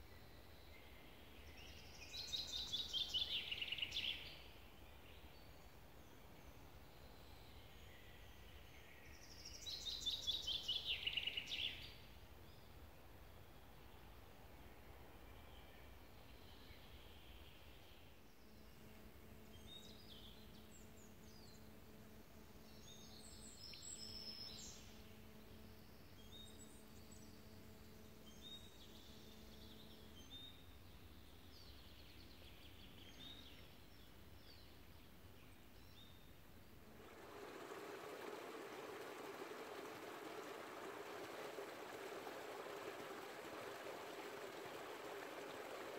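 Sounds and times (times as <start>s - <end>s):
faint steady hum: 0.0s - 45.9s
birds chirping: 36.8s - 45.9s
river water rushing: 36.9s - 45.9s.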